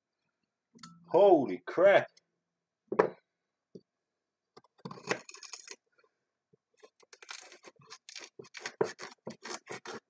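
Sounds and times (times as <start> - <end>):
blade scraping a carrot: 6.8 - 10.0.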